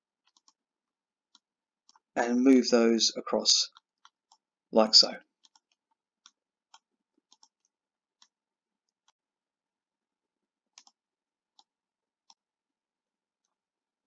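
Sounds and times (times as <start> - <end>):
computer mouse clicks: 0.2 - 0.6, 3.7 - 4.5, 5.4 - 9.2, 10.7 - 12.4.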